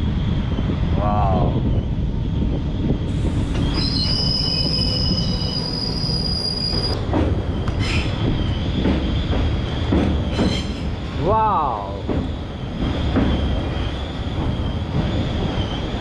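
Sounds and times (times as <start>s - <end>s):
train wheels rumbling on track: 0.0s - 16.0s
high thin wheel squeal: 3.6s - 7.0s.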